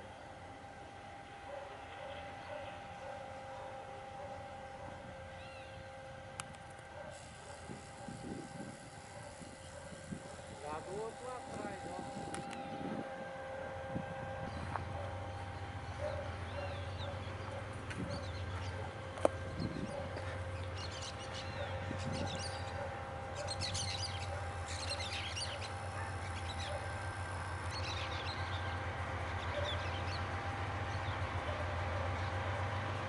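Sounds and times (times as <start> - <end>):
locomotive rumble: 0.0 - 33.0
birds chirping: 19.6 - 26.9.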